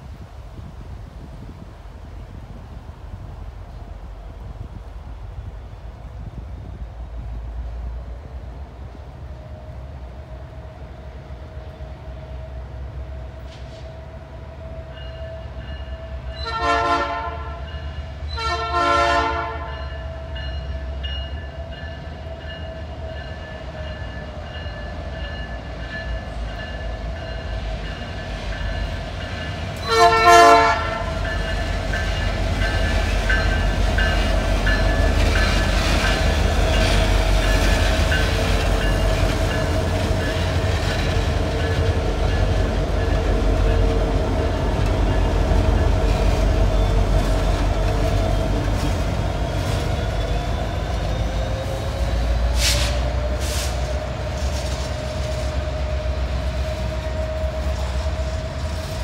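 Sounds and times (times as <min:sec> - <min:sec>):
engine and rail rumble: 0:00.0 - 0:59.0
locomotive air horn blasts: 0:16.3 - 0:20.2, 0:29.8 - 0:31.6.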